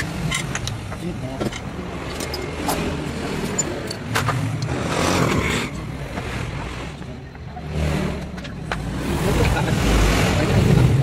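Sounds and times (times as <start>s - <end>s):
metal parts clinking: 0.0s - 0.8s, 1.4s - 4.7s
low rumble of vehicle noise: 0.0s - 11.0s.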